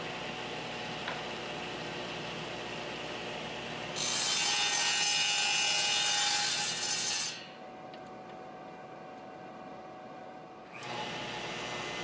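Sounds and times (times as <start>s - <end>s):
table saw cutting a board: 1.6s - 7.5s, 10.7s - 12.0s.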